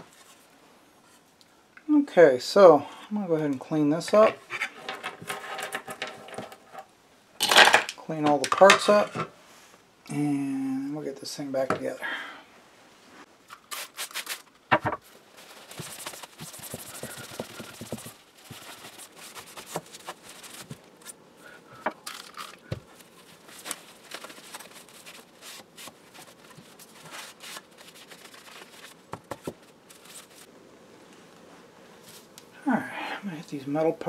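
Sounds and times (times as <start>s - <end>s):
cloth rubbing and rustling: 12.7s - 21.2s, 22.2s - 32.3s.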